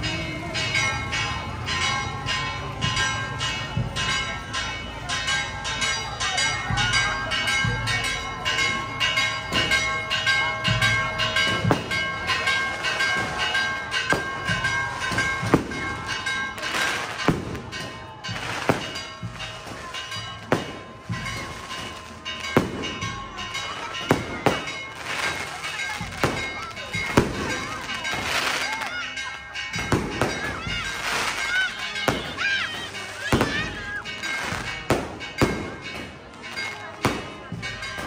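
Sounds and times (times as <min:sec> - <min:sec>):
church bells ringing: 0:00.0 - 0:38.0
fireworks bangs: 0:09.2 - 0:38.0.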